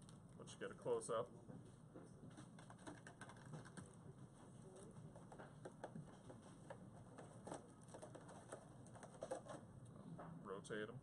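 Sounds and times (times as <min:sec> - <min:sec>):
plastic figure clicking and rustling: 0:02.4 - 0:03.9.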